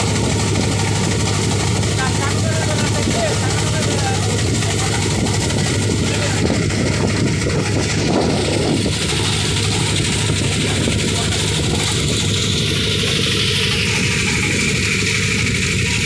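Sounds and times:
boat engine low drone: 0:00.0 - 0:16.0
rush of wind and water: 0:00.0 - 0:16.0.

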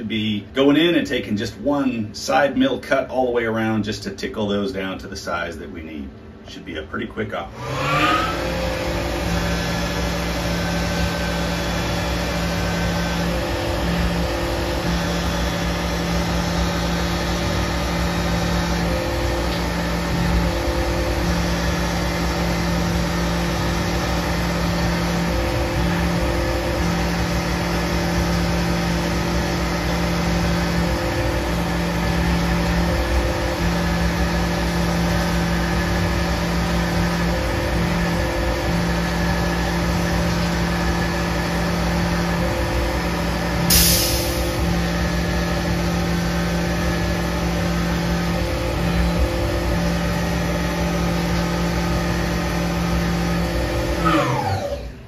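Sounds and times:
mill spindle humming: 0:00.0 - 0:55.0
coolant spraying: 0:07.8 - 0:54.1
short sharp hiss: 0:43.7 - 0:44.6.

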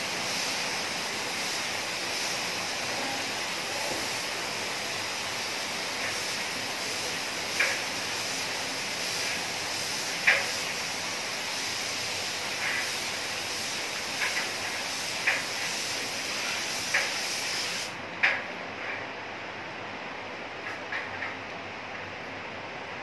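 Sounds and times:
spray gun hissing: 0:00.0 - 0:18.0.

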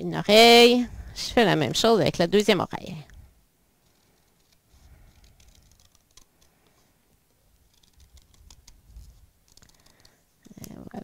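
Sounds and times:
scissors snipping paper: 0:03.9 - 0:06.7, 0:07.6 - 0:10.2.

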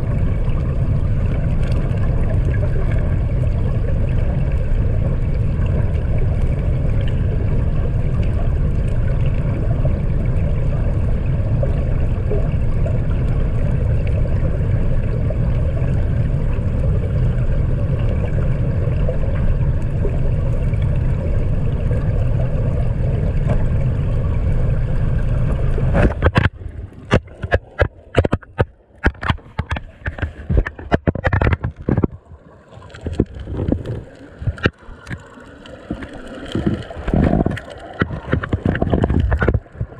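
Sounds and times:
muffled underwater river rumble: 0:00.0 - 0:39.9
knocks and splashes: 0:25.4 - 0:39.9.

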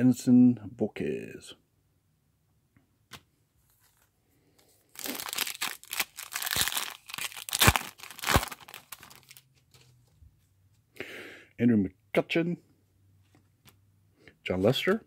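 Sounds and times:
foil wrapper crinkling and tearing: 0:04.9 - 0:09.8.

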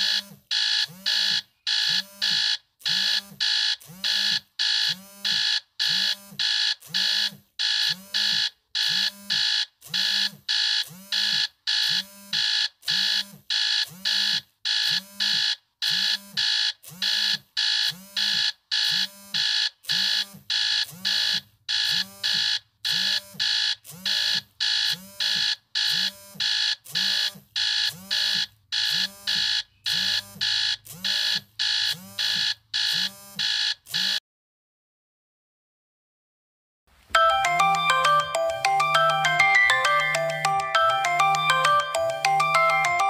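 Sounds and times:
phone alarm beeping: 0:37.2 - 0:43.0.

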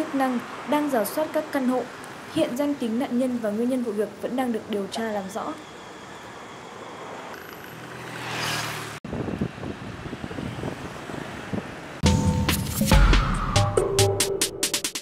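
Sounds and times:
vehicles passing: 0:00.0 - 0:12.8
musical logo jingle: 0:12.0 - 0:14.8.

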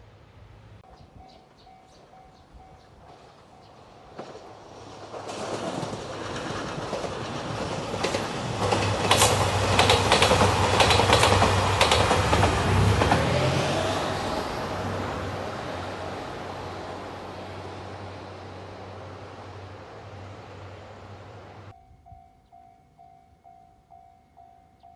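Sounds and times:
diesel train passing: 0:00.0 - 0:22.2
wheels clicking over rail joints: 0:04.1 - 0:13.9.

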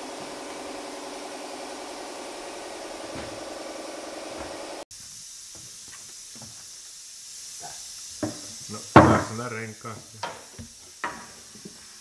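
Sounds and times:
fridge humming: 0:00.0 - 0:04.8
fridge door knocks: 0:09.0 - 0:09.3.

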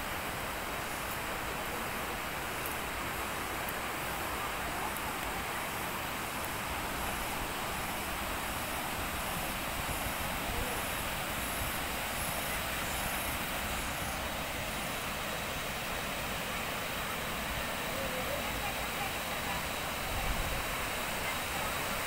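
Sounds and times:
waterfall rushing over rocks: 0:00.0 - 0:22.0.

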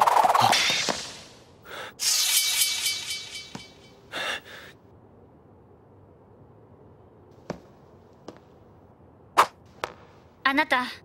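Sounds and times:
ringing clatter: 0:02.1 - 0:04.0.

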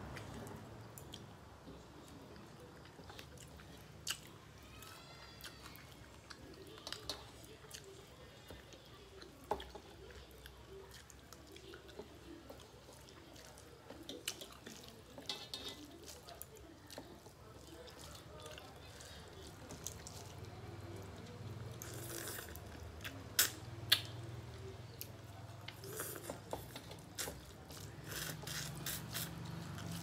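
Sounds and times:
chewing: 0:00.0 - 0:30.0
fingers mixing wet food: 0:00.0 - 0:30.0.

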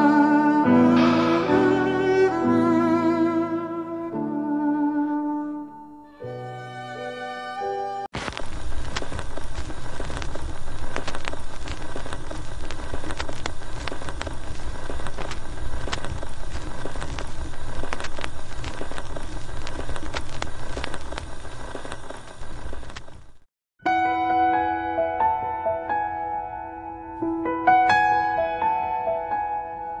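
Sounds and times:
record surface crackle and hiss: 0:00.0 - 0:03.7, 0:08.2 - 0:23.5
low rumble: 0:00.8 - 0:04.0
record clicks: 0:08.2 - 0:23.3.

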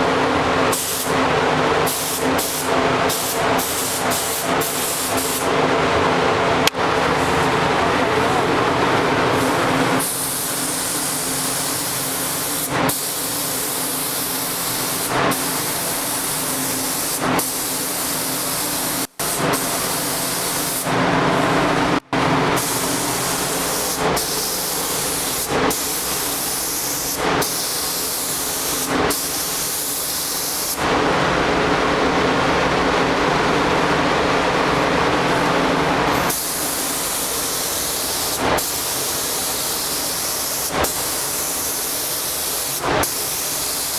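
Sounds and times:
paint spray gun hissing: 0:01.8 - 0:05.5, 0:09.4 - 0:20.9, 0:22.5 - 0:30.8, 0:36.2 - 0:43.9.

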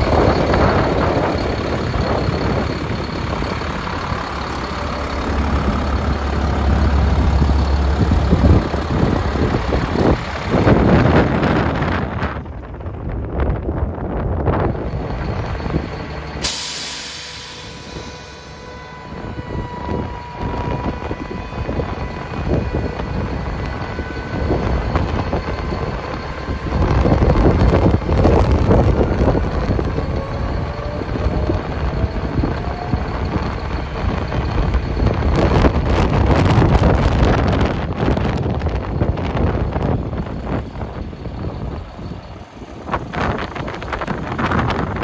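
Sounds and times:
wind rumbling on microphone: 0:00.0 - 0:16.4, 0:17.9 - 0:45.0
sharp hiss of released air: 0:16.4 - 0:18.6.

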